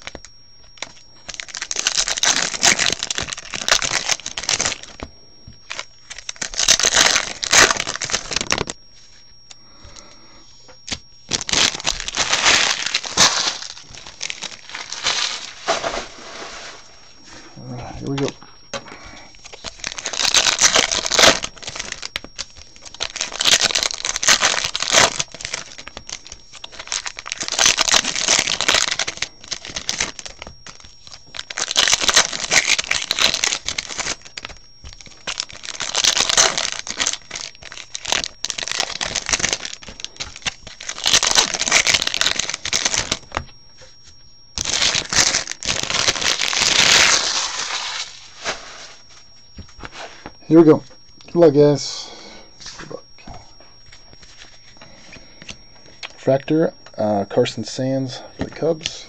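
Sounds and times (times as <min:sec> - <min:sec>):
foil wrappers crinkling and tearing: 0:00.0 - 0:09.2, 0:10.8 - 0:16.9, 0:19.3 - 0:50.3.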